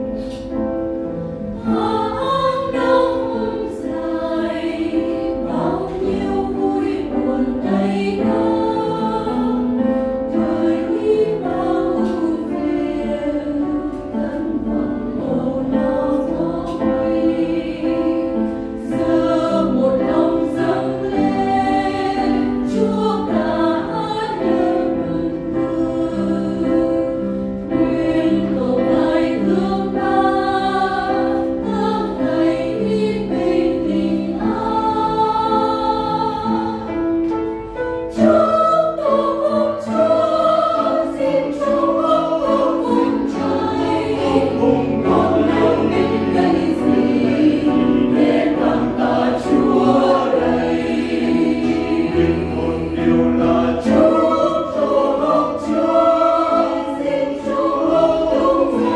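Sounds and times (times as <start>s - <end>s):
choir singing a hymn: 0.0s - 58.9s
piano accompaniment: 0.0s - 58.9s.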